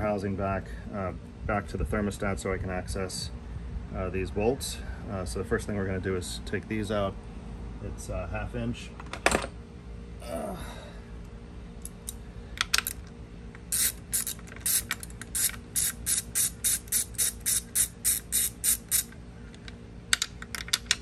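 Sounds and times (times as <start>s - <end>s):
socket ratchet clicking: 13.6s - 19.2s.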